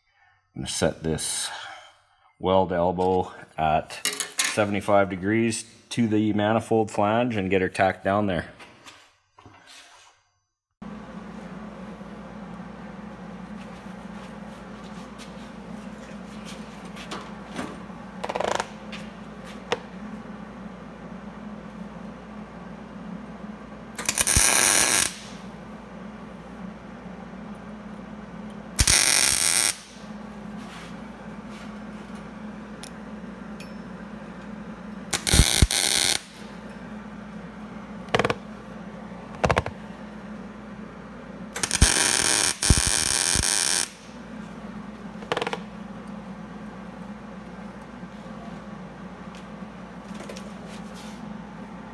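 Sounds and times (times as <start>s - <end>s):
steady low hum: 10.8s - 51.9s
welder arc crackling: 23.9s - 25.5s, 28.7s - 30.1s, 35.1s - 36.5s, 41.5s - 44.2s.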